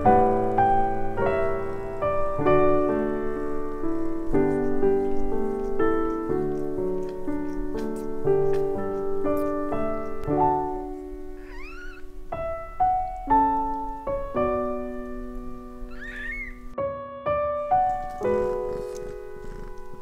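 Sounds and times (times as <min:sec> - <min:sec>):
piano music: 0:00.0 - 0:20.0
kitten mewing: 0:04.2 - 0:12.7.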